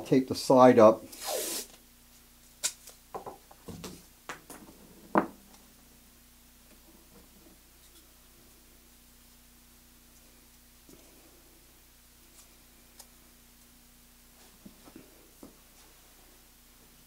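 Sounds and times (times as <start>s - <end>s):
faint steady hum: 0.0s - 17.0s
tape ripping off roll: 1.1s - 1.8s.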